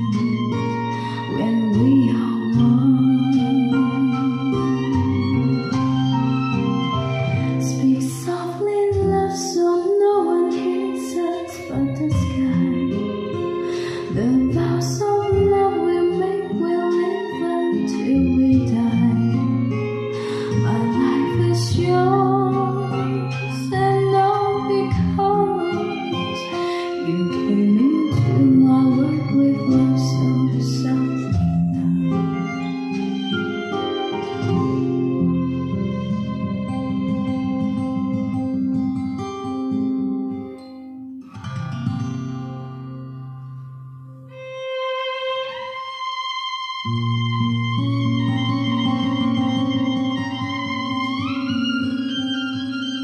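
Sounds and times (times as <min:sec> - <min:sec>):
woman singing song: 0:00.0 - 0:05.8, 0:07.4 - 0:33.0
instrumental music with held notes: 0:00.0 - 0:53.0.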